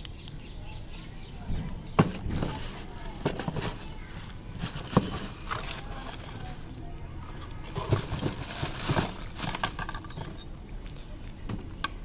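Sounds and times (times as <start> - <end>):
rummaging in cardboard box: 2.0 - 10.4
knocks and clinks of parts: 2.0 - 12.0.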